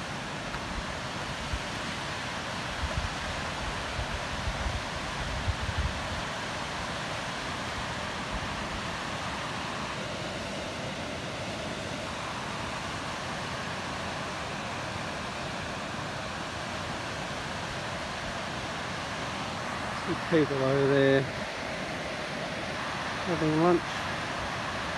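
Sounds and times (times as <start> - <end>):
water rushing over rocks: 0.0 - 24.9.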